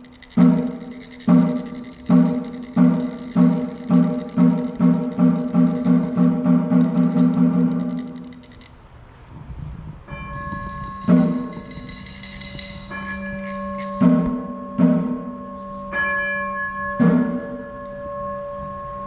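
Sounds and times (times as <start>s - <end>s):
struck bells ringing: 0.0s - 8.7s, 10.1s - 19.0s.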